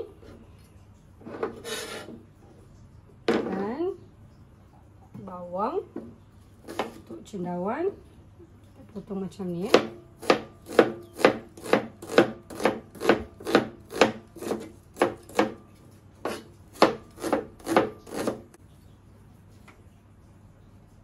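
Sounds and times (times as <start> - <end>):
knife chopping on cutting board: 9.7 - 15.6, 16.2 - 18.5.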